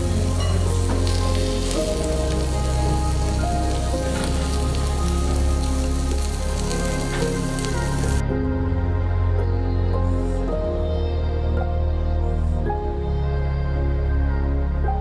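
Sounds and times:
beef sizzling on grill plate: 0:00.0 - 0:08.2
background music: 0:00.0 - 0:15.0.

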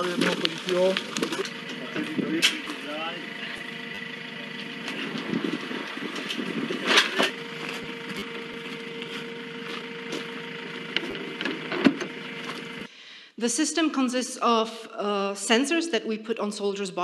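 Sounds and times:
vehicle engine idling: 0:00.0 - 0:12.9.

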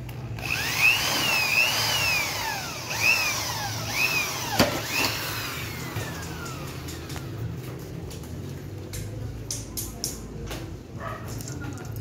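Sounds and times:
electric drill motor whine: 0:00.4 - 0:07.3.

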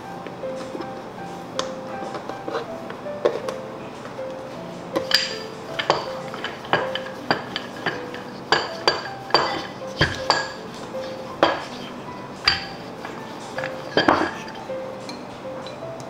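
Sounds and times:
rolling pin knocking on wooden board: 0:05.0 - 0:14.6.

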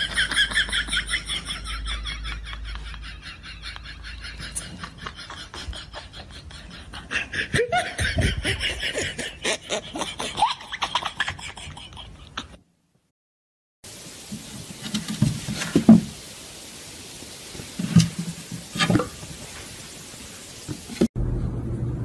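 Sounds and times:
person laughing breathily: 0:02.5 - 0:10.6.

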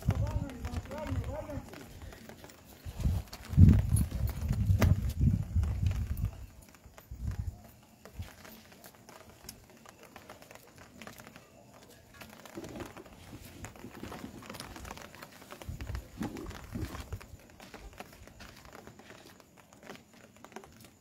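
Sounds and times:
dull footstep thumps: 0:00.0 - 0:07.4
crinkly rustling: 0:00.0 - 0:21.0
light rain patter: 0:00.0 - 0:21.0.

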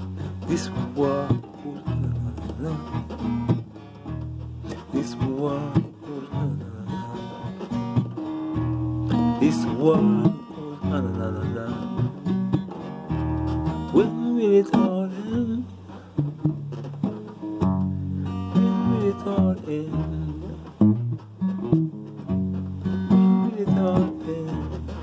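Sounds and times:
acoustic guitar strumming chords: 0:00.0 - 0:25.0.

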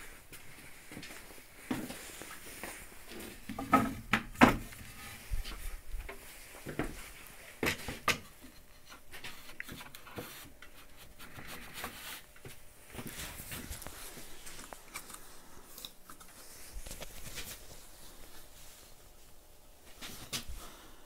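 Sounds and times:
objects knocking and clunking: 0:03.4 - 0:07.0.

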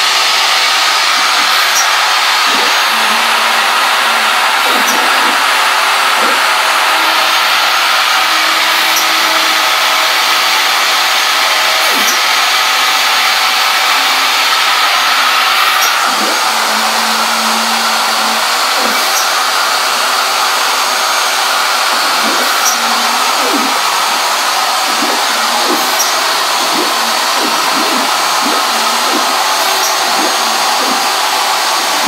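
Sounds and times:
stepper motors whining: 0:00.0 - 0:32.0
machine rushing noise: 0:15.7 - 0:32.0.

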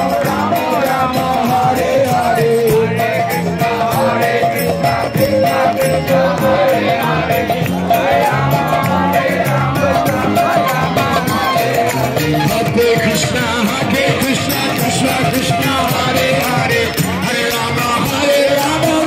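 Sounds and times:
group chanting: 0:00.0 - 0:12.2
jingling hand percussion: 0:00.0 - 0:19.0.

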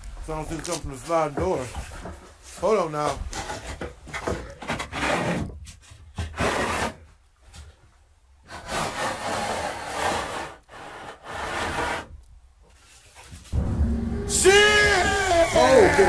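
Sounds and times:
wooden sliding door scraping: 0:03.3 - 0:07.0, 0:08.5 - 0:12.1.

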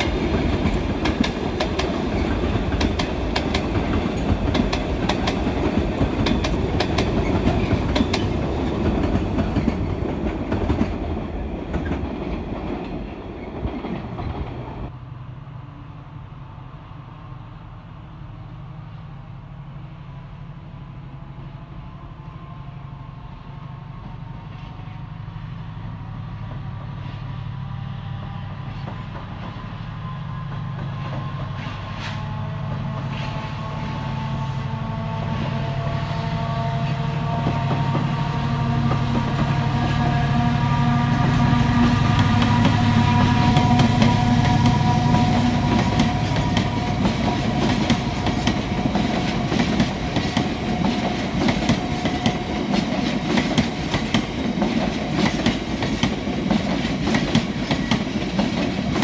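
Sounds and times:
train wagons clattering over rail joints: 0:00.0 - 0:14.7
diesel locomotive engine hum: 0:00.0 - 0:59.0.

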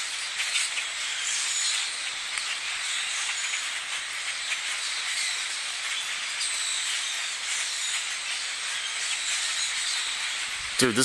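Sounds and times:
flock of birds chattering: 0:00.0 - 0:11.0.

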